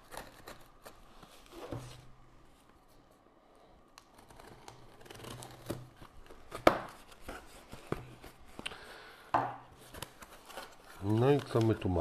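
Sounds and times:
cardboard rustling: 9.8 - 12.0.

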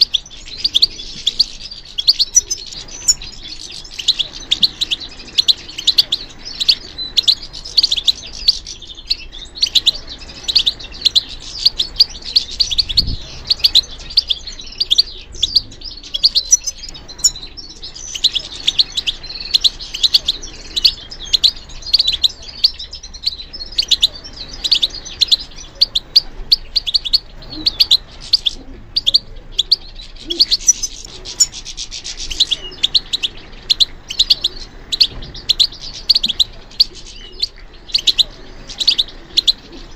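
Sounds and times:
finch twittering song: 0.0 - 39.9.

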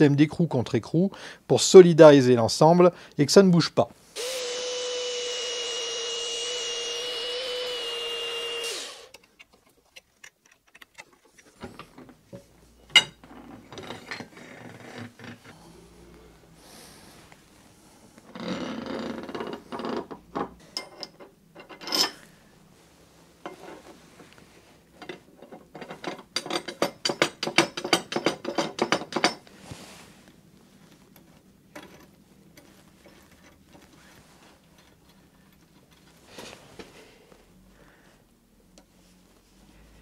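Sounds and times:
vise screw clicking and clattering: 7.8 - 12.2, 19.3 - 22.2, 25.0 - 29.4, 31.7 - 33.9.

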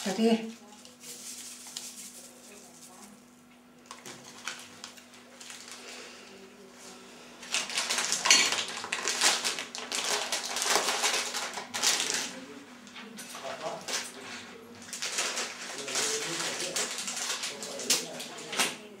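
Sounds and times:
packaging crinkling and rustling: 3.9 - 5.8, 7.4 - 12.4, 13.3 - 14.2, 14.8 - 18.9.

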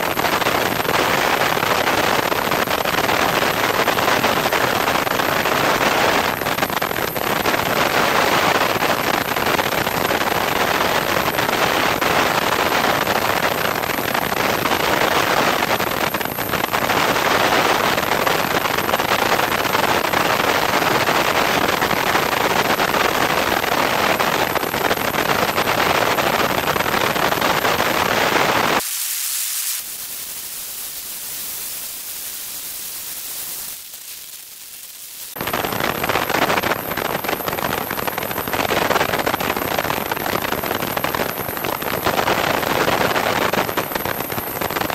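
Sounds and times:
rushing airflow hiss: 28.6 - 35.4.

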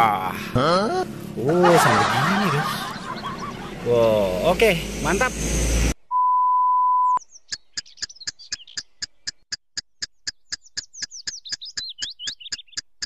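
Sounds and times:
twittering bird-like chirps: 2.8 - 4.3, 6.9 - 13.0.

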